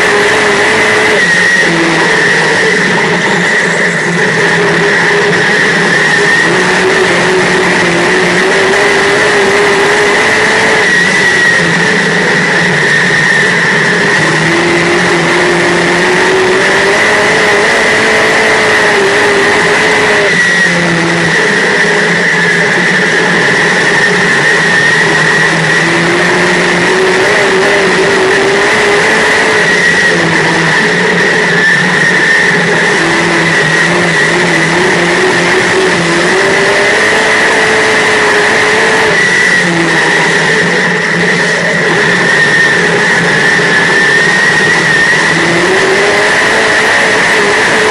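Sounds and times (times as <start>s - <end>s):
loud constant rush: 0.0s - 47.9s
race car engine: 0.0s - 47.9s.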